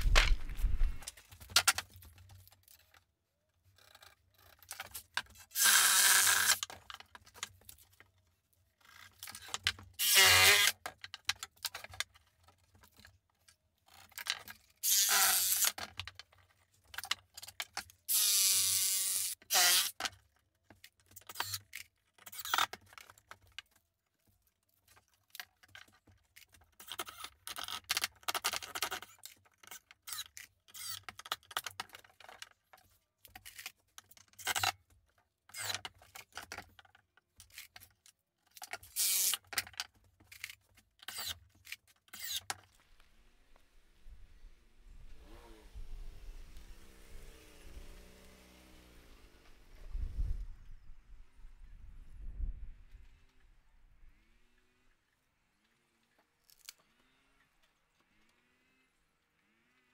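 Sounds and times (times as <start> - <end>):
cordless power tool whirring: 10.0 - 10.7, 18.1 - 19.9, 45.0 - 50.2.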